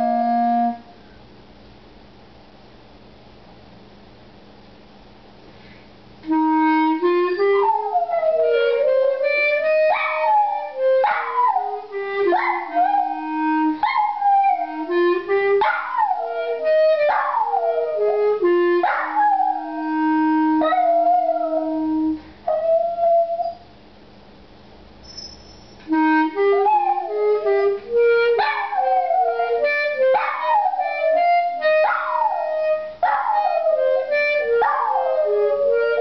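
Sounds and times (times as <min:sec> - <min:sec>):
wind instrument slow notes: 0:06.2 - 0:23.5, 0:25.1 - 0:36.0
small dog howling: 0:09.9 - 0:14.8, 0:26.6 - 0:27.2, 0:31.8 - 0:33.9.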